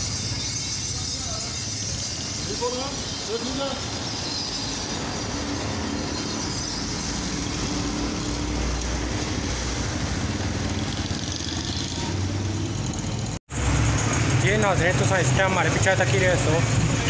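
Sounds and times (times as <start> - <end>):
background traffic noise: 0.0 - 17.0
motorcycles passing: 0.0 - 17.0.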